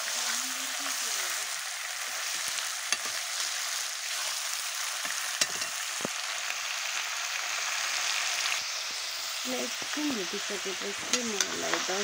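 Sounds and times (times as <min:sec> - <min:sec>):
meat sizzling in oil: 0:00.0 - 0:12.0
metal spoon scraping pan: 0:02.1 - 0:06.1, 0:11.0 - 0:12.0.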